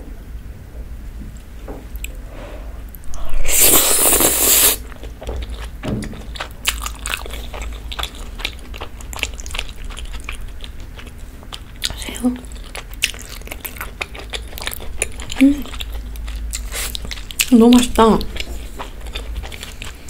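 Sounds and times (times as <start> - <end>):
slurping noodles: 3.4 - 4.8
wet chewing clicks: 3.8 - 20.0.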